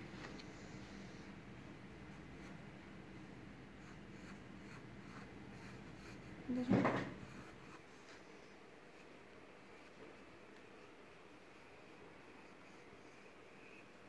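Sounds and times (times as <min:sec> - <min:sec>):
pencil scratching on paper: 0:03.8 - 0:08.1.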